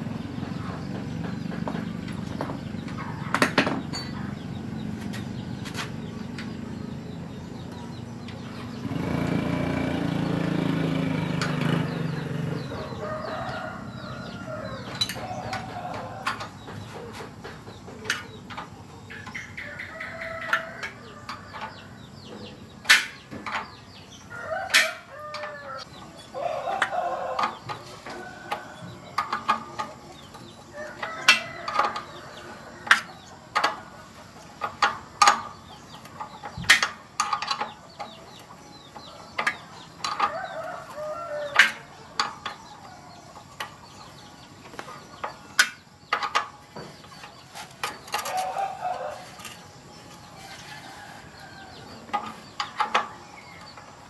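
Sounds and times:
low engine rumble: 0.0s - 19.1s
chickens clucking: 0.0s - 54.0s
rooster crowing: 12.8s - 16.3s, 24.3s - 29.1s, 40.2s - 41.9s, 48.2s - 49.5s.

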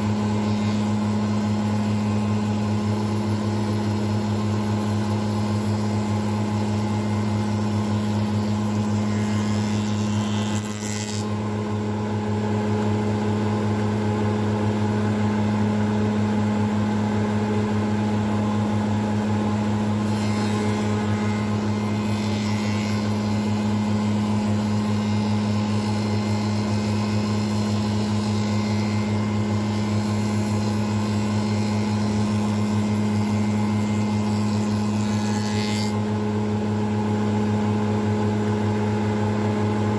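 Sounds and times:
hissing wood cutting noise: 0.0s - 11.8s, 19.8s - 36.4s.

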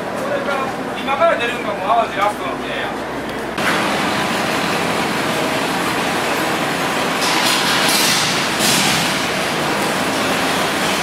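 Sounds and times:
loud mechanical din: 3.6s - 11.0s.

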